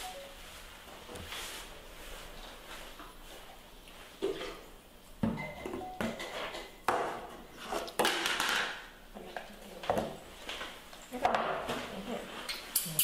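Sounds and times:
rustling scrape: 0.4s - 3.5s.

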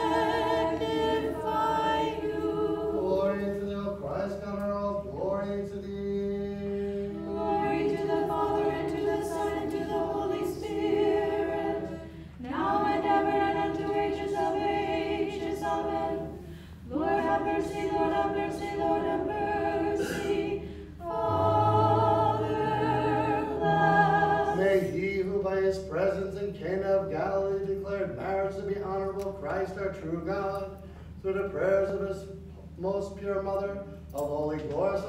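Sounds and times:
choir singing a cappella: 0.0s - 4.0s, 5.7s - 25.4s.

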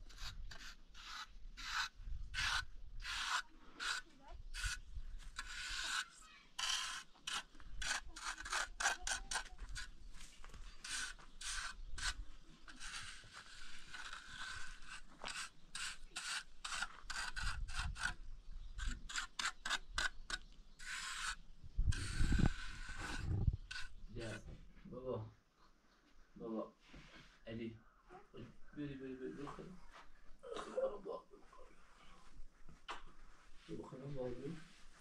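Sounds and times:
trowel scraping wet mortar: 0.0s - 10.0s, 10.7s - 18.2s, 18.8s - 24.4s.

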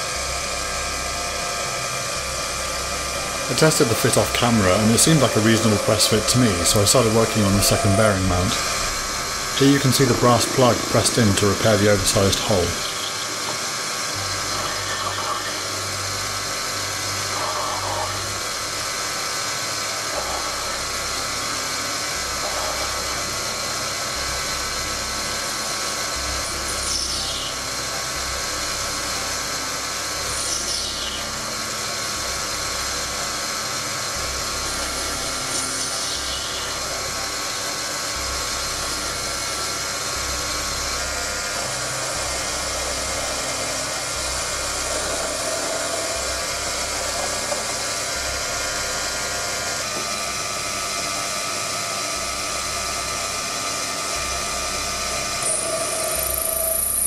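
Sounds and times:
lathe whine with cutting noise: 0.0s - 57.0s.

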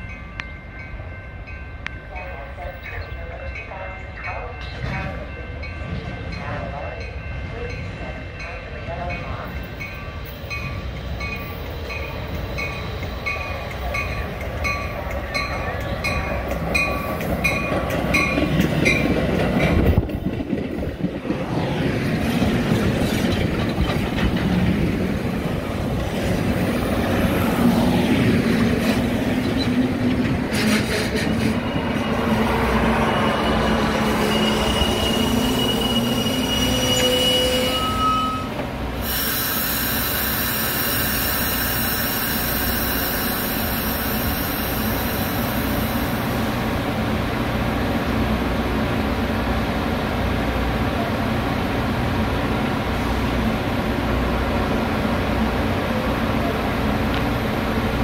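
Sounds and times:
crossing bells dinging: 0.0s - 19.8s
train rolling past: 0.0s - 58.0s
wheels and brakes squealing: 29.3s - 45.3s.

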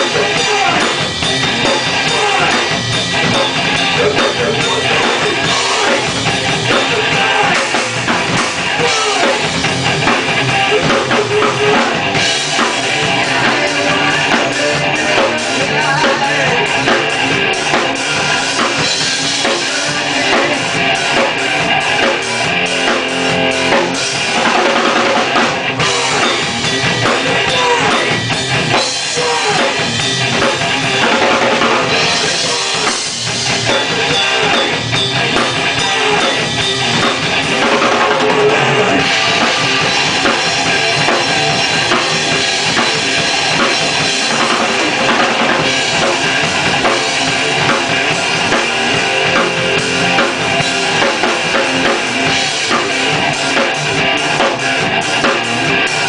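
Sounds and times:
electric guitar: 0.0s - 56.0s
rock band playing: 0.0s - 56.0s.

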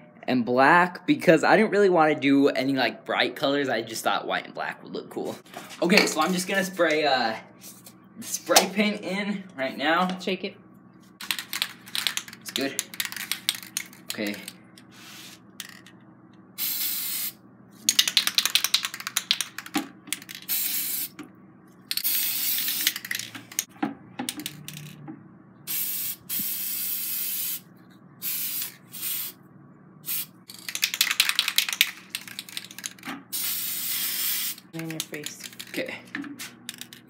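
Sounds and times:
spray paint can hissing: 16.6s - 19.6s, 20.2s - 21.2s, 21.9s - 23.7s, 25.7s - 27.6s, 28.2s - 29.4s, 30.0s - 35.6s.

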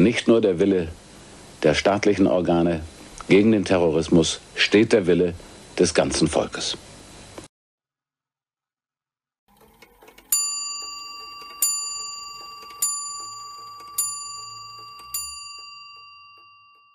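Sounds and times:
clock bell striking: 9.6s - 16.9s.

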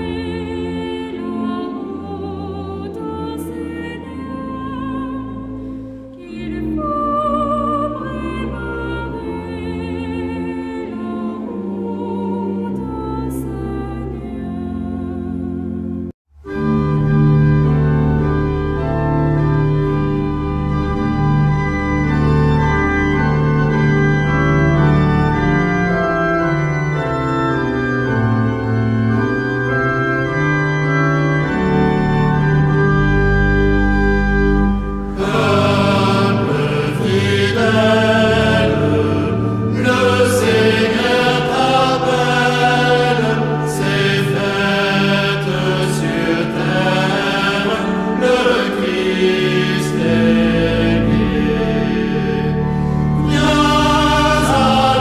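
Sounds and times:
choir singing: 0.0s - 16.0s, 35.1s - 55.0s
organ playing held chords: 0.0s - 55.0s.

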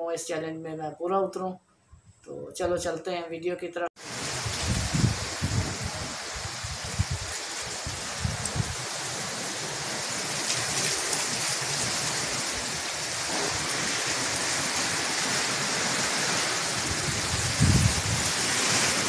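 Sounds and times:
wind rushing through palm trees: 4.0s - 19.0s
wind thumps on microphone: 4.2s - 8.8s, 16.8s - 19.0s.

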